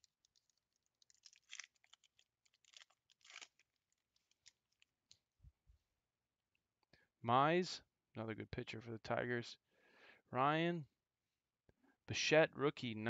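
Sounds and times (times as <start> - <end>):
foil wrapper crinkling and tearing: 0.0 - 5.2.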